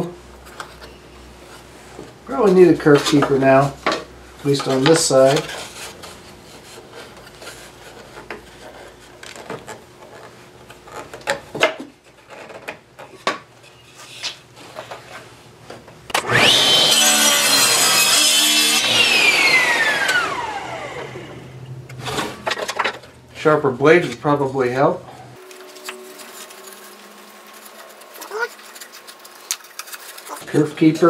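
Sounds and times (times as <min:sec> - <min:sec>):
saw cutting through wood: 0:16.2 - 0:21.4
table saw whining: 0:16.2 - 0:21.7.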